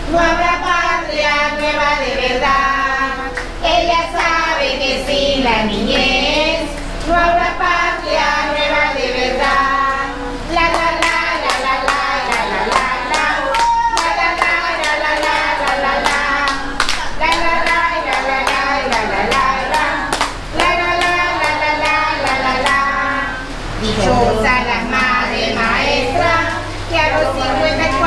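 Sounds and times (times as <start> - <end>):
song with singing: 0.0 - 28.0
hands clapping a beat: 10.6 - 22.8.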